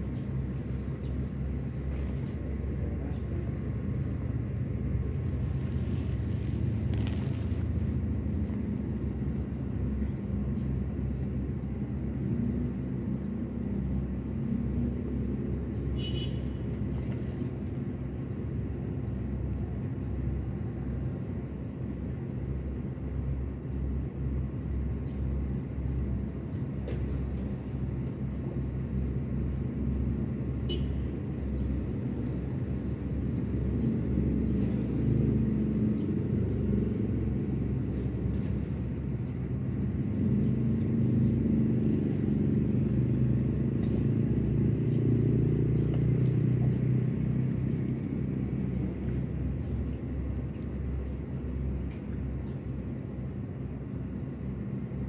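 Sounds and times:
low outdoor rumble: 0.0 - 55.0.

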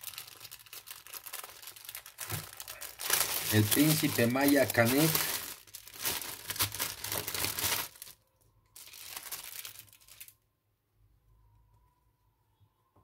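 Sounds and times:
paper wrapping crinkling: 0.0 - 8.2, 8.8 - 10.3
plastic bag crinkling: 0.0 - 8.2, 8.8 - 10.4.

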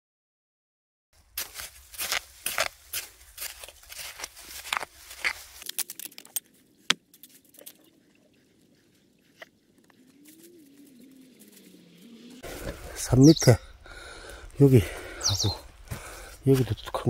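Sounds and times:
gritty soil scrapes and crunches: 1.2 - 8.0, 9.2 - 13.2, 15.8 - 17.0.

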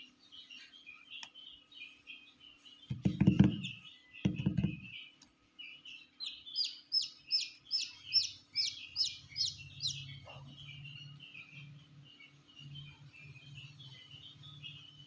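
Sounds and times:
chicks peeping: 0.0 - 15.0.

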